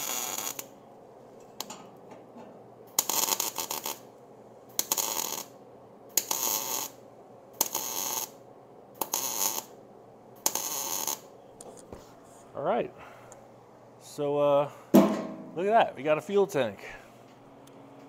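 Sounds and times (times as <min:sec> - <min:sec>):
welding arc crackle and hiss: 0:00.0 - 0:00.8, 0:02.8 - 0:09.8, 0:10.4 - 0:11.4.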